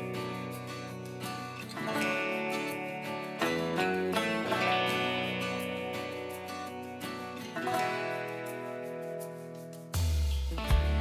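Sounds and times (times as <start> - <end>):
sustained chord music: 0.0 - 10.0.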